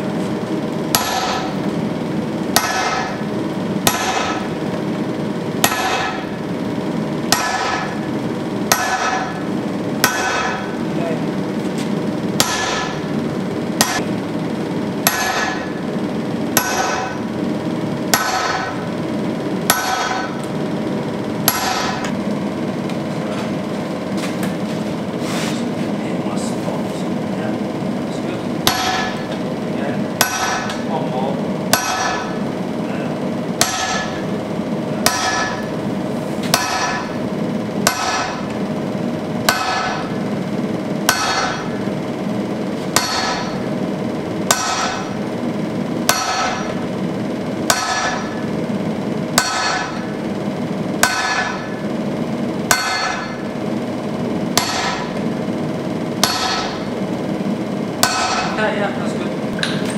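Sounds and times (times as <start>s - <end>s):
sledgehammer striking steel on anvil: 0.9s - 1.6s, 2.5s - 4.6s, 5.6s - 6.4s, 7.3s - 8.0s, 8.7s - 10.8s, 12.4s - 13.1s, 13.8s - 14.1s, 15.0s - 15.8s, 16.5s - 17.3s, 18.1s - 18.9s, 19.7s - 20.4s, 21.4s - 22.2s, 28.6s - 29.3s, 30.2s - 30.8s, 31.7s - 32.4s, 33.6s - 34.3s, 35.0s - 35.8s, 36.4s - 37.2s, 37.8s - 38.6s, 39.4s - 40.2s, 41.0s - 41.9s, 42.9s - 43.7s, 44.4s - 45.2s, 46.0s - 46.8s, 47.6s - 48.5s, 49.3s - 50.2s, 51.0s - 51.8s, 52.6s - 53.5s, 54.5s - 55.2s, 56.2s - 56.9s, 58.0s - 58.6s.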